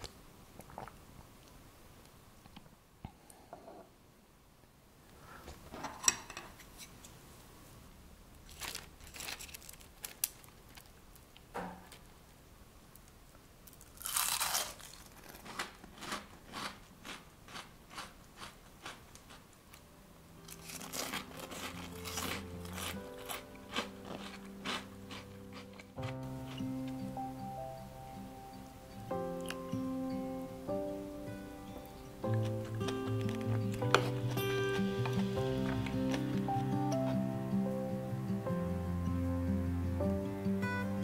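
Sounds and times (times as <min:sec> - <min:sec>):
crunchy food being chewed: 0:13.7 - 0:19.8, 0:20.4 - 0:27.0, 0:32.2 - 0:37.2
loud crunch: 0:14.0 - 0:19.4, 0:20.5 - 0:26.6
soft music: 0:19.8 - 0:41.0.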